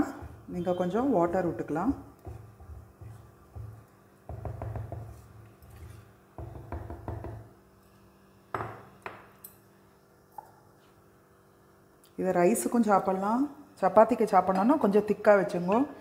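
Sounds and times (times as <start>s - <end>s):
spatula knocking and tapping: 2.1s - 5.5s, 6.3s - 7.5s
spatula scraping clay pot: 2.2s - 3.9s, 5.0s - 6.2s.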